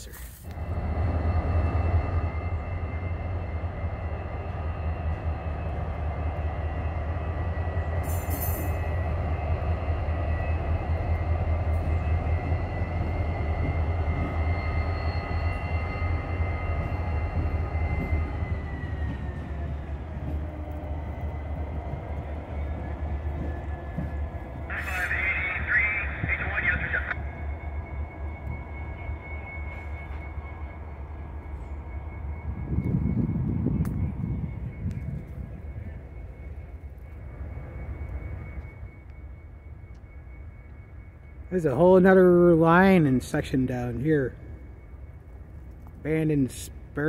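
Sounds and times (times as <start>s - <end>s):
diesel locomotive engine drone: 0.0s - 47.0s
rail noise: 0.0s - 47.0s
high whine: 20.8s - 43.7s.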